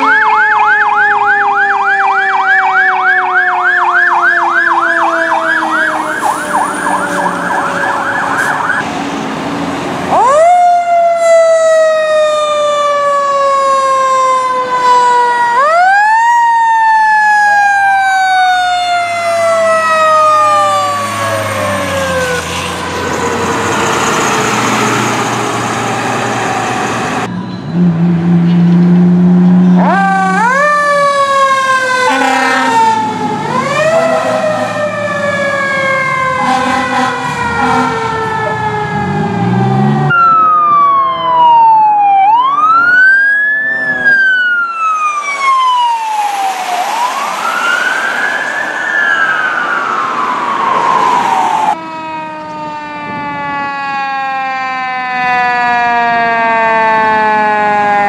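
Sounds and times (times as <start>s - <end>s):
rushing truck noise: 0.0s - 15.6s, 17.6s - 54.7s
fire truck sirens wailing: 0.0s - 58.0s
deep horn blast: 32.0s - 35.0s, 36.4s - 40.1s.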